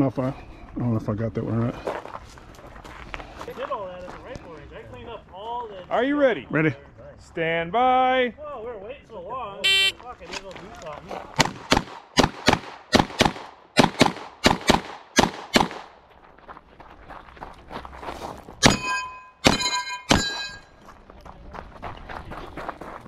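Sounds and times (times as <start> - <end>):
gunshots: 11.4 - 16.0, 18.6 - 20.6
steel target ringing: 18.6 - 20.7.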